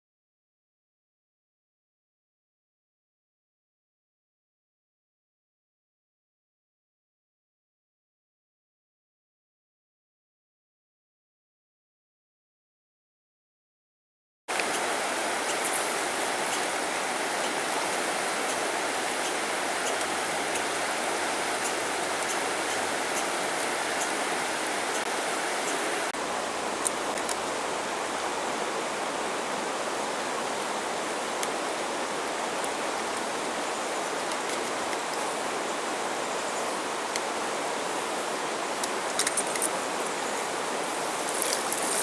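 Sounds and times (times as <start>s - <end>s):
river rushing over rocks: 14.5s - 42.0s.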